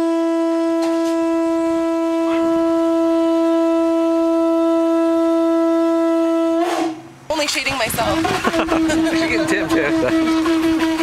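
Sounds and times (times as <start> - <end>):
conch shell horn long note: 0.0 - 7.2, 8.0 - 11.0.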